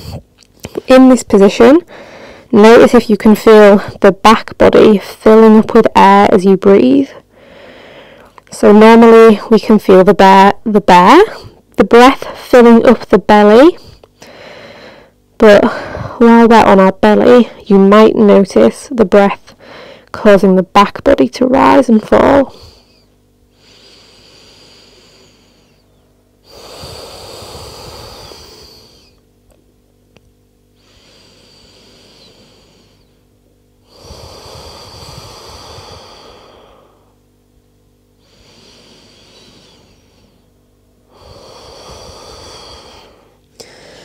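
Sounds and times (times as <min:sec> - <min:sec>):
slow deep breathing: 0:01.9 - 0:02.5, 0:07.2 - 0:08.4, 0:13.8 - 0:16.2, 0:19.6 - 0:20.1, 0:22.5 - 0:29.2, 0:30.7 - 0:37.3, 0:38.1 - 0:44.0.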